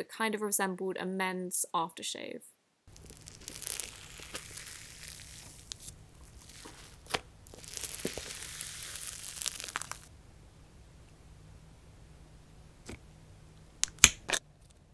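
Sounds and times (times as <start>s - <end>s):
slime crackling: 2.9s - 10.1s
slime popping: 2.9s - 10.1s.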